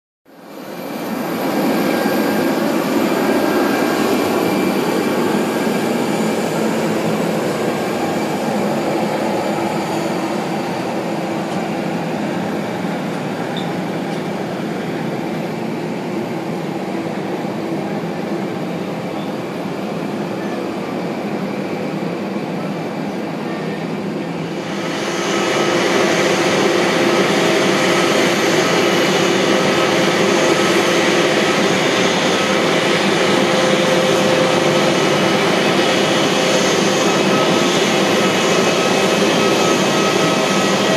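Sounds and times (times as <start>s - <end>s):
steady whine: 0.4s - 22.9s, 24.2s - 40.9s
held tones from aircraft: 16.9s - 40.9s.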